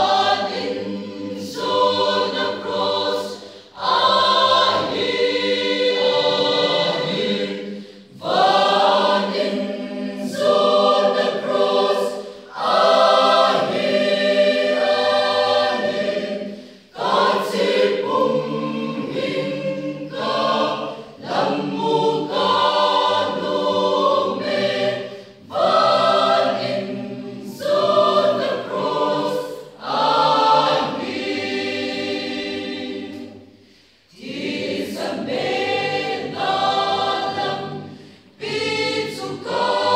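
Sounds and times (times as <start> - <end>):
choir singing unaccompanied: 0.0 - 39.9.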